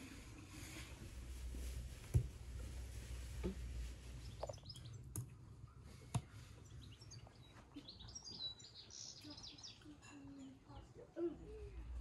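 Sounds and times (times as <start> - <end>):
small birds chirping: 4.1 - 12.0.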